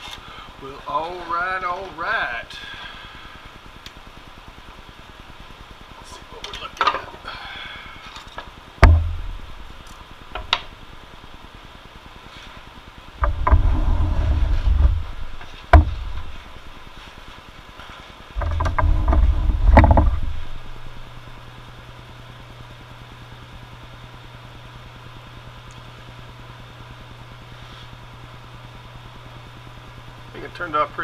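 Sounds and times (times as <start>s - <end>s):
low steady hum: 0.0s - 31.0s
wooden panel knocking on metal table: 8.8s - 9.4s, 14.8s - 16.3s, 18.4s - 20.4s
low rumbling: 8.8s - 10.5s, 13.2s - 17.0s, 18.4s - 21.9s.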